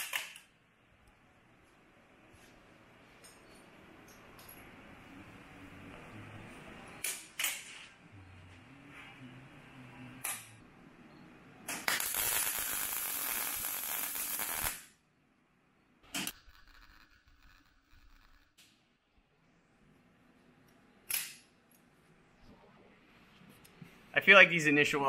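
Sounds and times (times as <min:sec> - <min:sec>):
welding arc crackle: 0:11.7 - 0:14.9, 0:16.2 - 0:18.7.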